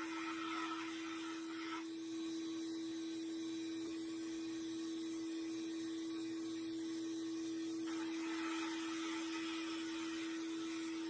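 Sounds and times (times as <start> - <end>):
sandblasting cabinet hum: 0.0 - 11.0.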